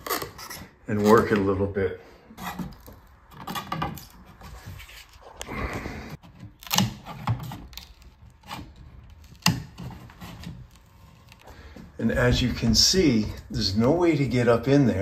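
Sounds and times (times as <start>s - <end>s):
pry bar scraping wood: 2.3s - 5.5s, 6.2s - 12.3s.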